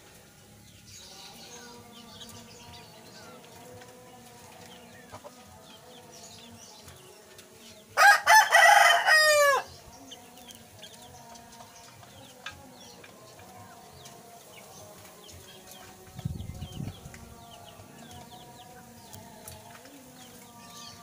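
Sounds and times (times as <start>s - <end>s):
small birds chirping: 0.0s - 21.0s
rooster crowing: 8.0s - 9.7s.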